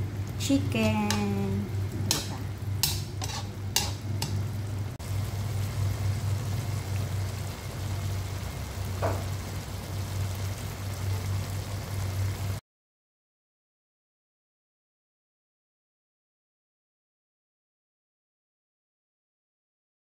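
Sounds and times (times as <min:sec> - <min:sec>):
food sizzling in a wok: 0:00.0 - 0:12.6
steady low hum: 0:00.0 - 0:12.6.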